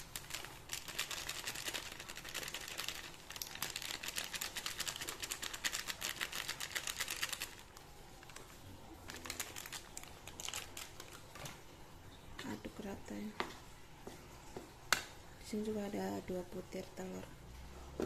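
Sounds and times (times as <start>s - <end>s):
plastic sachet crinkling: 0.0s - 11.6s.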